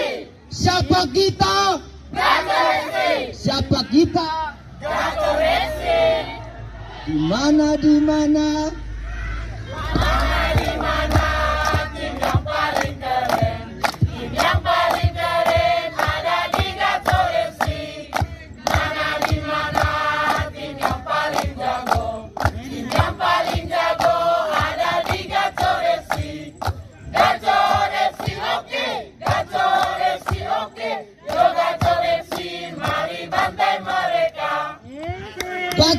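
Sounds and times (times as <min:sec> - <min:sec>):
group singing in unison: 0:00.0 - 0:00.3, 0:02.1 - 0:03.4, 0:04.8 - 0:06.6, 0:09.6 - 0:34.9
sharp hand claps: 0:09.8 - 0:26.9, 0:29.2 - 0:30.6, 0:31.2 - 0:33.5.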